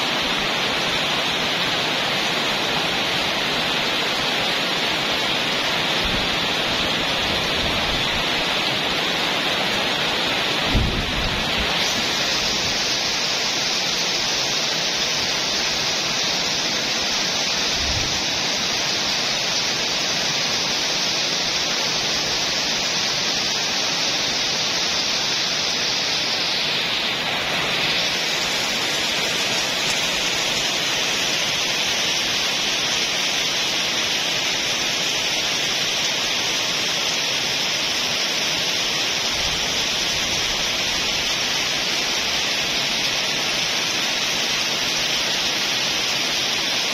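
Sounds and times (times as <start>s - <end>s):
heavy rain pouring: 0.0s - 46.9s.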